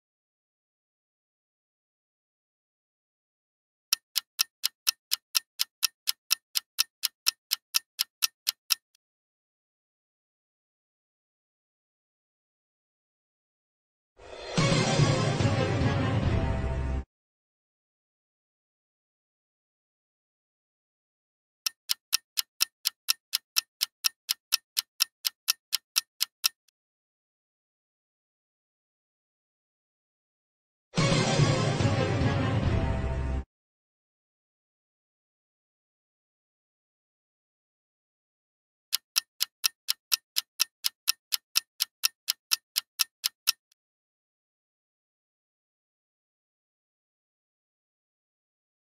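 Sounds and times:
clock ticking: 3.9s - 9.0s, 21.6s - 26.7s, 38.9s - 43.8s.

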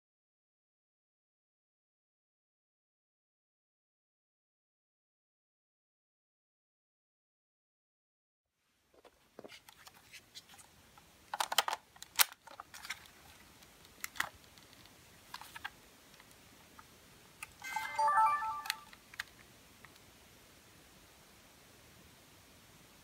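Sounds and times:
plastic camera body being handled: 11.3s - 13.2s, 14.0s - 15.7s
electronic start-up beeps: 17.6s - 18.9s.

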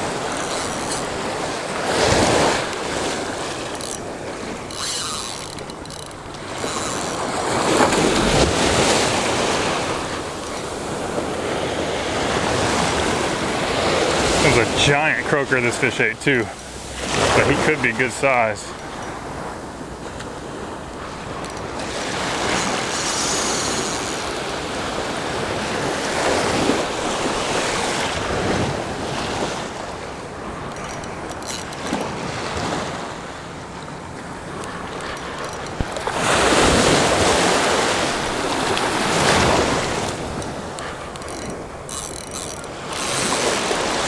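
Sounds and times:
small surf washing over shallows: 0.0s - 5.3s, 6.2s - 31.3s, 31.9s - 42.0s, 42.6s - 44.0s.

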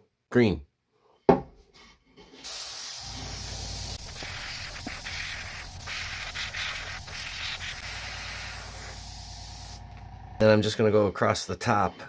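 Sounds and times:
airbrush hissing: 2.4s - 10.0s.

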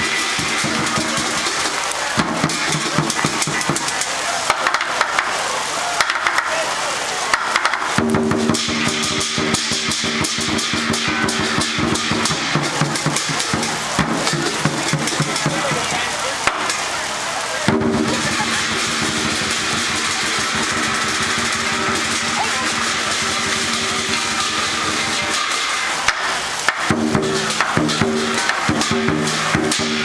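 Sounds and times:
hand cymbals clashing: 0.0s - 4.8s, 7.3s - 16.9s, 17.7s - 30.0s
large drum beaten rapidly: 0.0s - 5.3s, 7.3s - 16.8s, 17.6s - 30.0s
gong: 17.9s - 25.8s.

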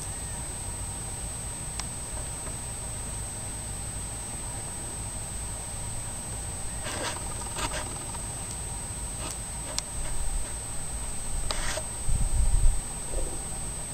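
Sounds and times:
steady high-pitched whine: 0.0s - 13.9s
faint scratchy rustles: 6.6s - 8.2s, 9.1s - 12.4s
wind rumbling on microphone: 9.2s - 13.9s.

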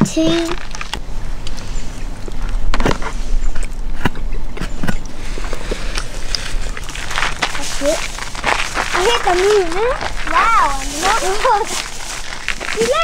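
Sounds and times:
steady low rumble: 0.0s - 13.0s
plastic packaging rustling: 0.2s - 1.0s, 6.1s - 13.0s.

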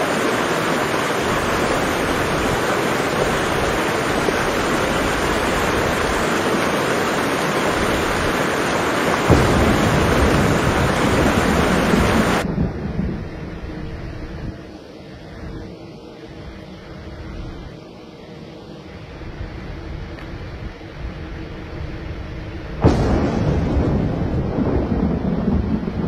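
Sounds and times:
heavy rain hissing: 0.0s - 17.8s, 18.8s - 26.0s
low rumble of thunder: 9.2s - 14.8s, 21.0s - 26.0s.

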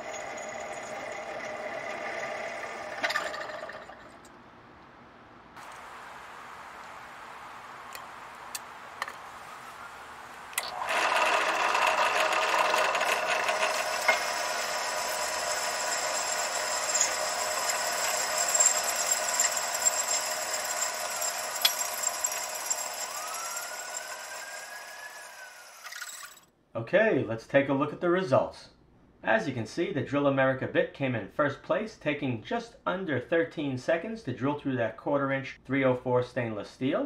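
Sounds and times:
drill bit squealing in steel: 0.0s - 4.2s, 10.6s - 26.4s.

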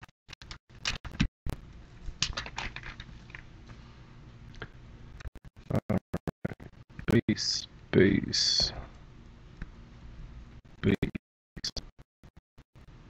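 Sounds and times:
foil wrapper crinkling: 2.2s - 3.4s.

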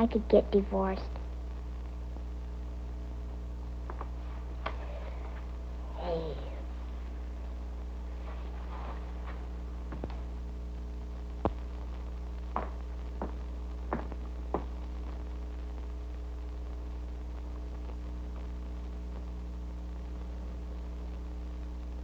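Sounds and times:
steady electrical hum: 0.0s - 22.0s
light footsteps on floor: 8.2s - 10.3s, 12.5s - 14.8s.

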